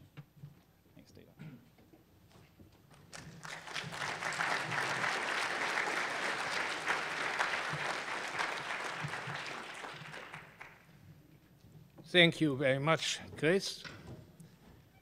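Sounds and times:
audience applauding: 0:03.1 - 0:10.9.

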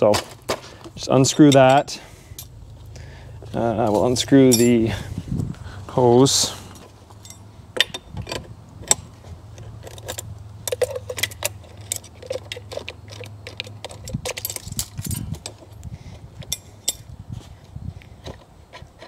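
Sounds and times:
metal clinks of wrench: 0:01.4 - 0:02.5, 0:04.4 - 0:05.0, 0:07.2 - 0:08.1, 0:09.8 - 0:15.8, 0:16.4 - 0:17.1.

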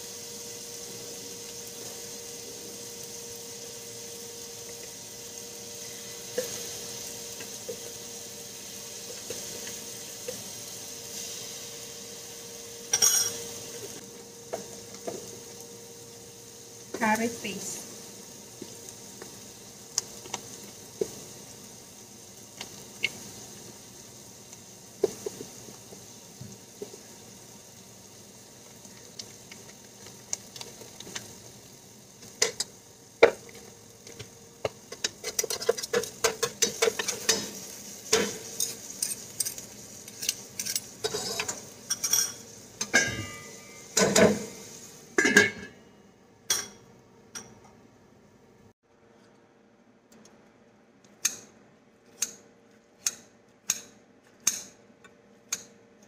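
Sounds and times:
food sizzling: 0:00.0 - 0:47.6
metal spoon clinking in pot: 0:12.9 - 0:13.4.

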